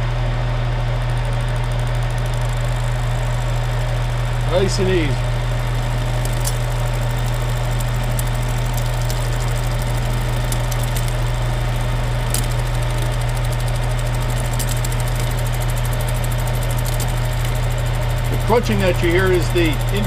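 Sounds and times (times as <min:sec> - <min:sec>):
metal lathe hum: 0:01.7 - 0:20.0
sharp crunching clicks: 0:05.7 - 0:20.0.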